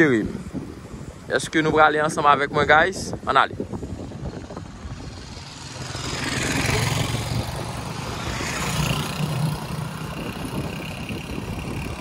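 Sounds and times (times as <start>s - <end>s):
wind hiss on microphone: 0.0s - 5.7s, 6.7s - 12.0s
motorcycle engine running: 4.0s - 12.0s.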